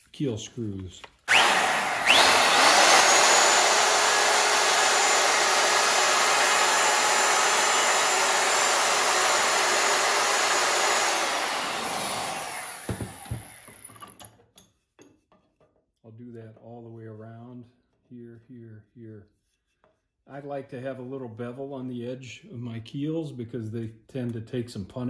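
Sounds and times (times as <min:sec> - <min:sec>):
high motor whine: 0:01.3 - 0:13.7
hand router running: 0:01.3 - 0:14.2.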